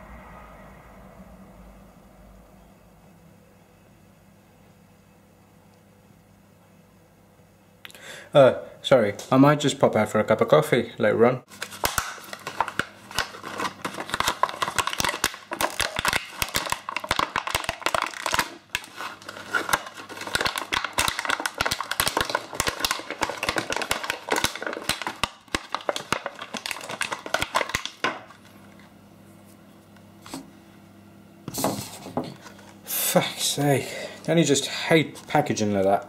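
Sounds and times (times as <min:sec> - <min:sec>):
plastic packaging crinkling and tearing: 0:11.5 - 0:28.4.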